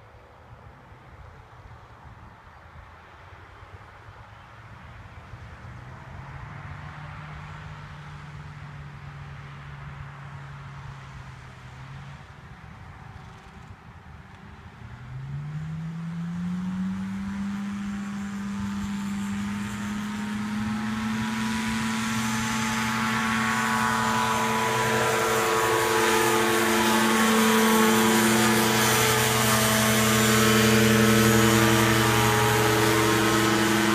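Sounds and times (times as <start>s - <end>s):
engine and propeller at full power: 0.0s - 33.9s.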